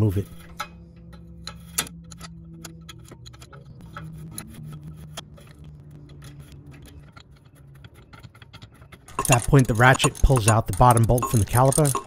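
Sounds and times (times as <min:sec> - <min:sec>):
wrench clicking on metal fitting: 0:07.0 - 0:12.0.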